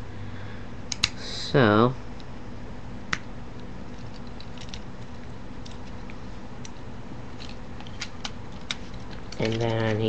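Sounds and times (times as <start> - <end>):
electrical hum and hiss: 0.0 - 10.0
plastic toy parts clicking: 7.4 - 10.0.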